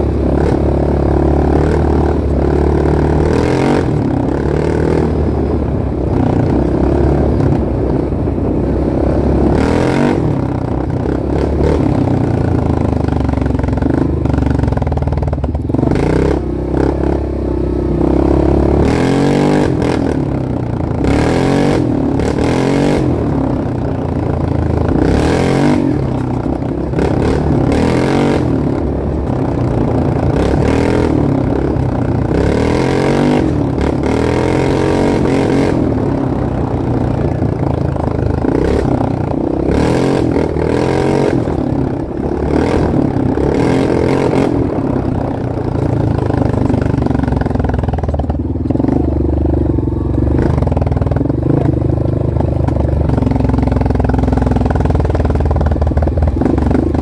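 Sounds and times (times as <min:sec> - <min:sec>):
off-road vehicle engine revving: 0:00.0 - 0:12.8, 0:15.6 - 0:48.0.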